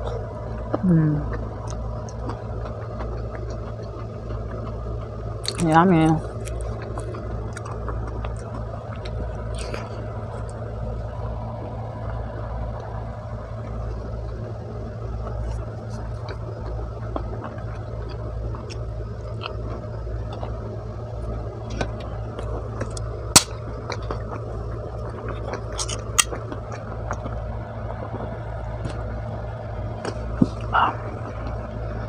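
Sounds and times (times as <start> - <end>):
steady low hum: 0.0 - 32.0
chewing clicks: 0.6 - 10.6, 15.2 - 20.6, 25.0 - 27.4.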